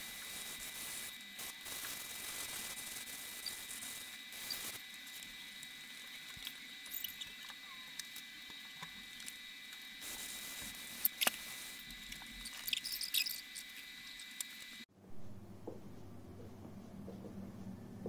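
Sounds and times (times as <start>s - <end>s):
thin high whine: 0.0s - 18.0s.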